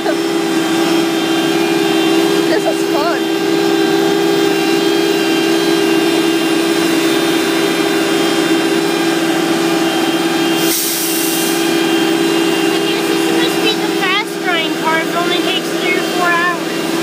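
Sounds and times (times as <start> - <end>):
diesel engine running: 0.0 - 17.0
burst of hiss: 10.6 - 11.6.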